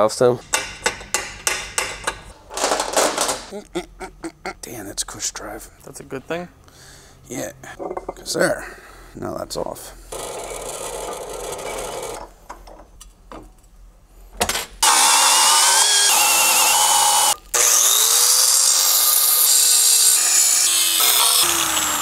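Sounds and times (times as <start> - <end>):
angle grinder cutting metal: 14.8 - 22.0.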